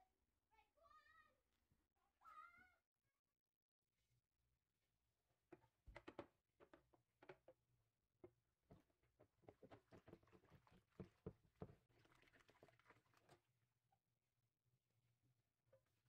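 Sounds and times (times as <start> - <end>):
soapy water splashing in a sink: 8.6 - 13.6.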